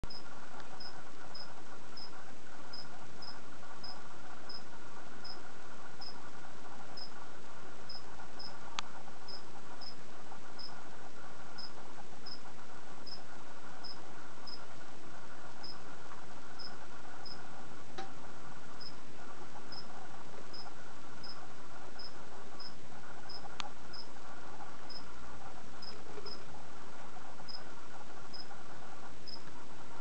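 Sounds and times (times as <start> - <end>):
background hiss: 0.1 - 30.0
cricket chirping: 0.8 - 2.1, 2.7 - 5.4, 7.9 - 8.6, 9.3 - 10.0, 13.8 - 14.6, 16.6 - 17.4, 20.5 - 21.4, 22.0 - 24.1, 24.9 - 25.1, 28.3 - 28.5, 29.2 - 29.4.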